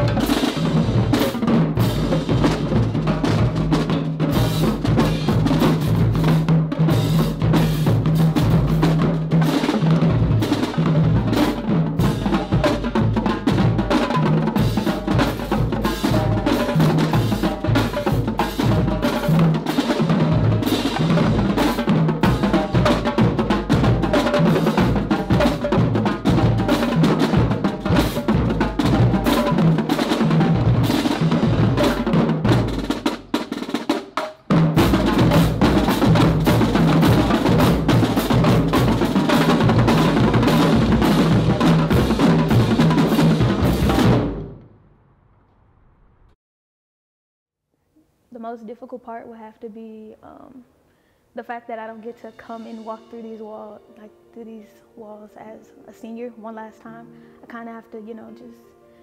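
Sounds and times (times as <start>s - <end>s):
marching drumline playing: 0.0s - 44.6s.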